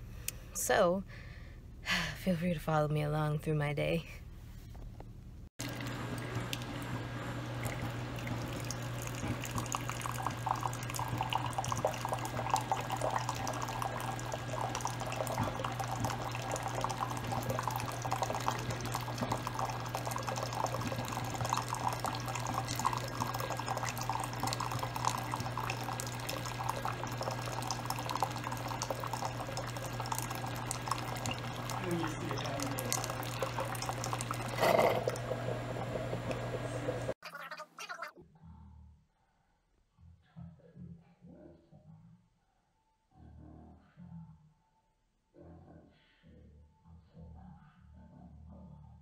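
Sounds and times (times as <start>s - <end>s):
machine humming: 5.6s - 37.2s
liquid trickling into mug: 5.6s - 38.1s.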